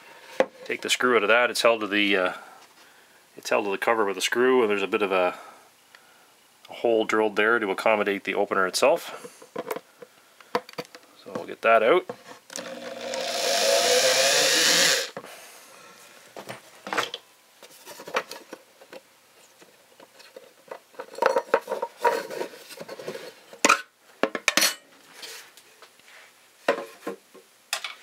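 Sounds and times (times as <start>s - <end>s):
power drill running: 12.5s - 15.2s.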